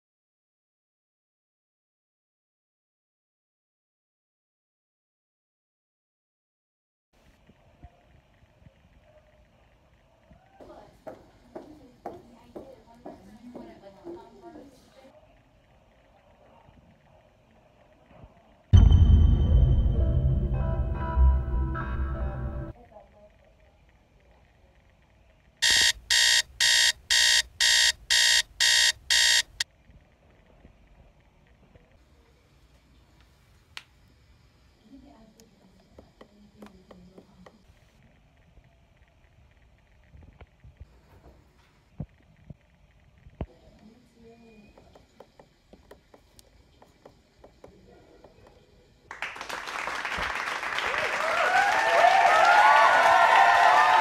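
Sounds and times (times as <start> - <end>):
high-pitched alarm beeps: 25.6 - 29.6
crowd applauding and cheering: 49.1 - 54.0
whoops: 50.9 - 54.0.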